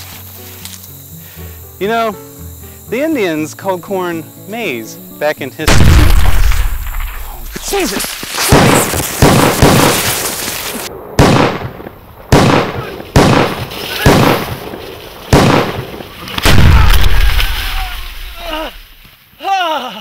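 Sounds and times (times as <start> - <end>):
shotgun blasts: 5.7 - 7.8, 8.4 - 18.2.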